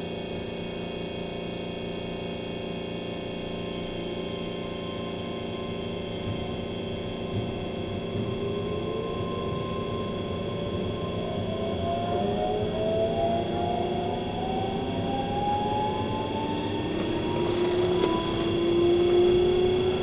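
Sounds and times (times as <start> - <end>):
train traction motor whine: 0.0 - 20.0
train wheels rumbling on track: 16.3 - 20.0.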